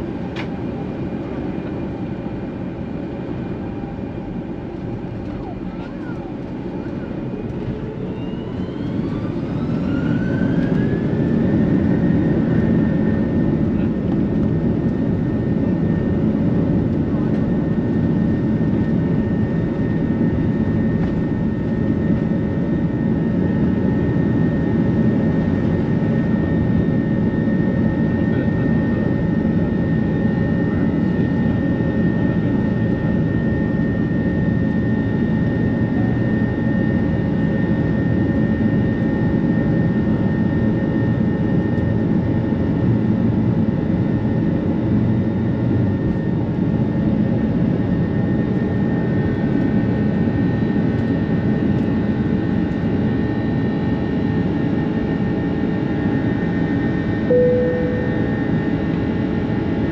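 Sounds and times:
jet engine rumble in cabin: 0:00.0 - 0:59.9
thin high tone: 0:57.3 - 0:58.6.

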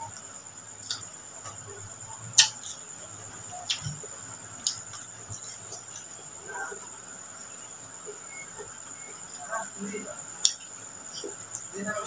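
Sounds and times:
chewing clicks and smacks: 0:00.8 - 0:01.6, 0:02.4 - 0:02.8, 0:03.6 - 0:04.0, 0:04.6 - 0:06.1, 0:10.4 - 0:10.6.

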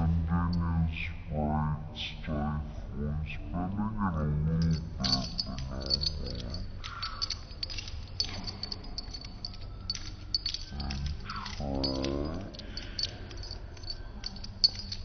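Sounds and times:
dog collar tags jingling: 0:04.5 - 0:15.0.

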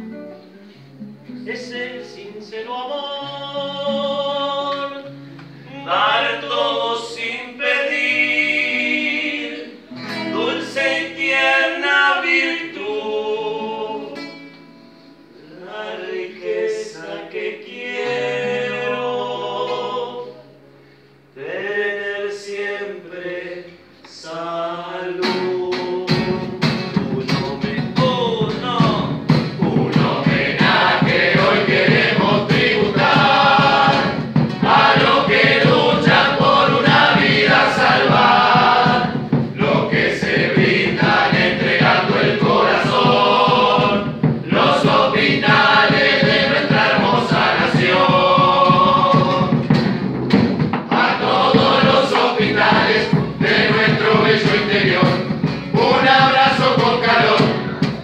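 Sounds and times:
strummed acoustic guitar: 0:00.0 - 0:15.6, 0:17.5 - 0:21.8, 0:25.1 - 0:58.0
group singing together: 0:02.6 - 0:05.1, 0:05.7 - 0:14.5, 0:15.3 - 0:20.6, 0:21.4 - 0:58.0
drum strokes: 0:26.1 - 0:58.0.

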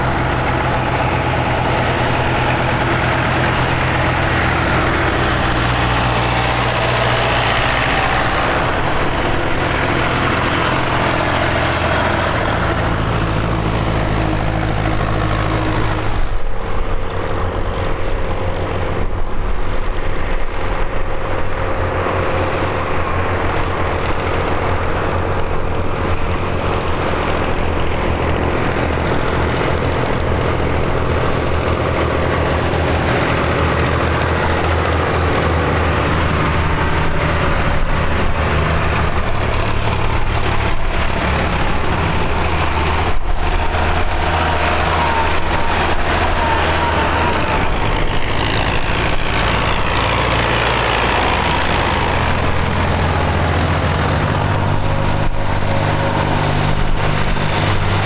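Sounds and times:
tractor engines droning: 0:00.0 - 0:58.0.

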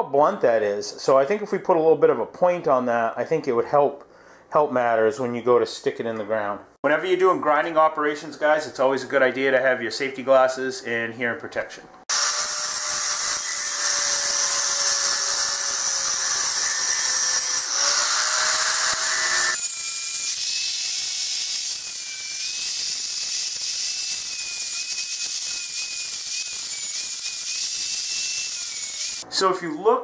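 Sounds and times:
angle grinder whining: 0:12.1 - 0:29.3.

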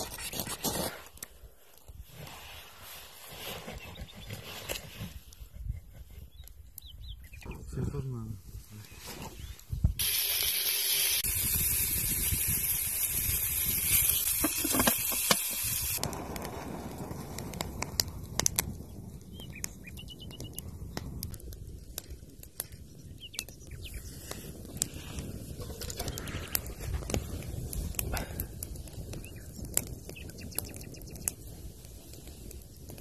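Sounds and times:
campfire crackling: 0:09.6 - 0:33.0
loud steady hiss: 0:10.0 - 0:16.0
fire snapping: 0:10.0 - 0:33.0.

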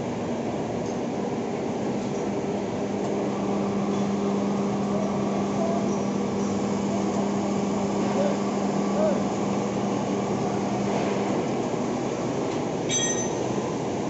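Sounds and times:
lathe machine hum: 0:02.4 - 0:12.9.

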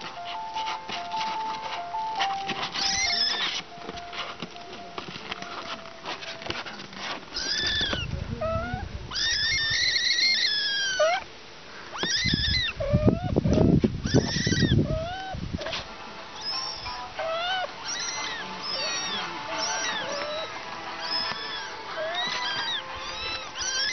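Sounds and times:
low muffled noise: 0:00.0 - 0:09.2, 0:12.7 - 0:23.9
kittens mewing: 0:02.6 - 0:03.6, 0:07.3 - 0:23.9.

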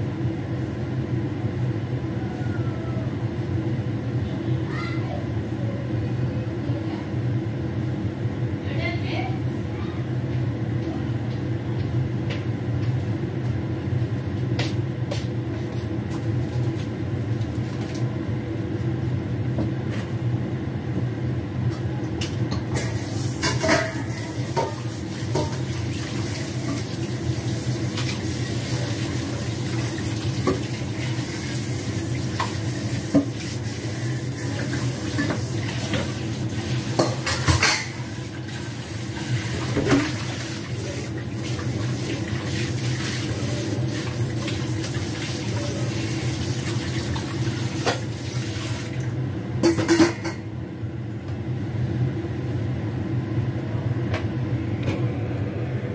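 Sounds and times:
dishes knocking and clinking: 0:49.6 - 0:50.4.

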